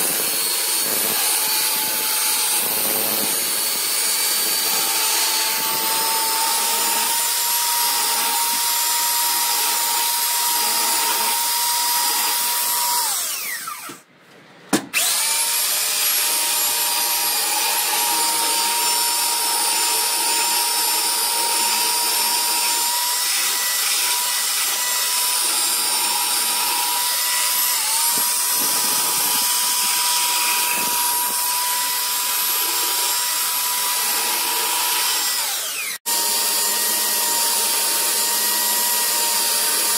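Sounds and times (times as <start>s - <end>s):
sander winding down: 15.0s - 39.9s
belt sander motor whine: 34.0s - 39.9s.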